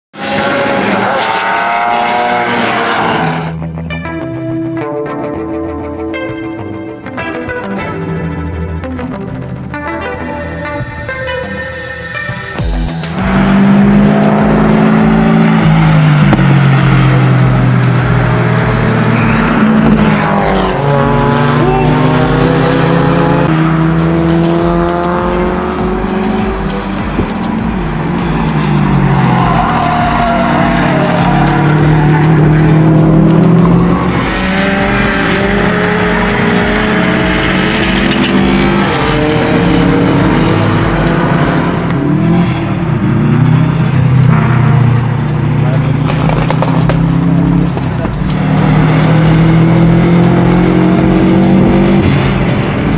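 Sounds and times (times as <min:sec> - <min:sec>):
car engine at high revs: 0:00.1 - 0:03.7, 0:12.9 - 0:52.9.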